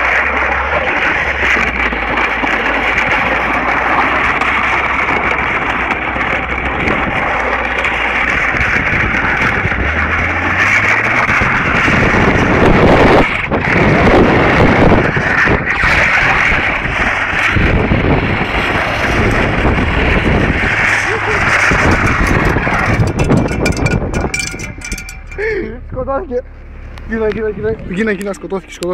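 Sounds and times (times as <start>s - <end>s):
wind rushing over microphone: 0.0s - 26.1s
car engine: 0.0s - 28.9s
road noise: 0.0s - 28.9s.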